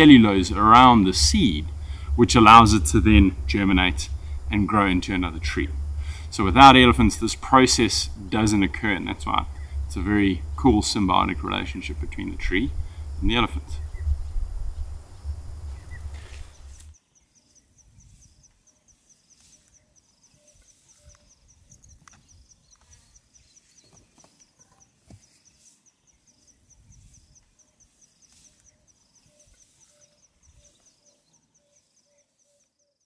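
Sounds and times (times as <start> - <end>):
lower repeating call: 0.0 - 16.8
wind rumble on microphone: 0.0 - 16.9.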